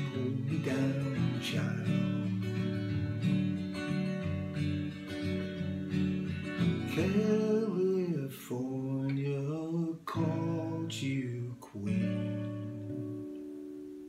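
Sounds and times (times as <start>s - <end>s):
man singing: 0.0s - 2.7s, 6.7s - 12.9s
acoustic guitar strumming: 0.0s - 14.0s.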